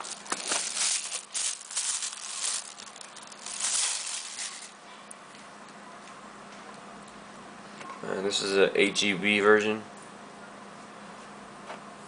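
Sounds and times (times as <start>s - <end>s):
plastic wrap crinkling: 0.0s - 4.8s.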